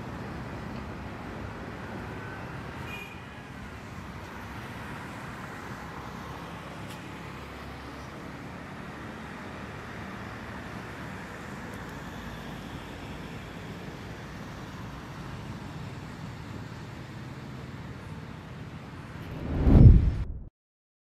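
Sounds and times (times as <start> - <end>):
road traffic passing: 3.5 - 20.3.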